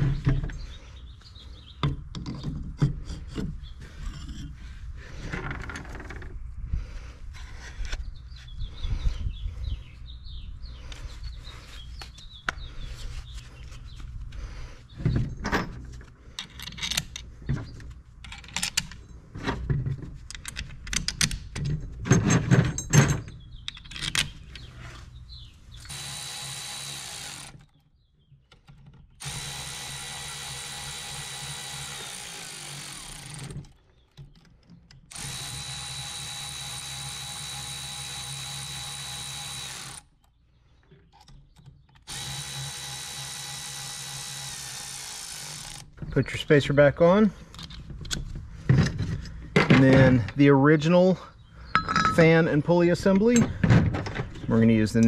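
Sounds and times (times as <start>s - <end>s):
metal parts clinking: 16.4s - 17.3s, 18.2s - 19.2s, 20.3s - 24.7s, 51.7s - 52.4s
cordless electric ratchet whine: 25.8s - 27.7s, 29.2s - 33.8s, 35.1s - 40.1s, 42.1s - 46.0s.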